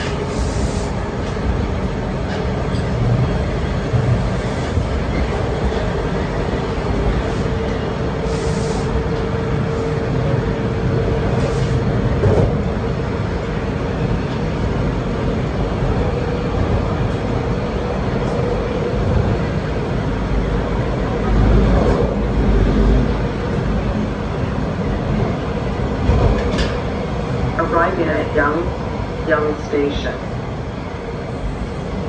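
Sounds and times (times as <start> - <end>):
train wheels rumbling on track: 0.0 - 32.0.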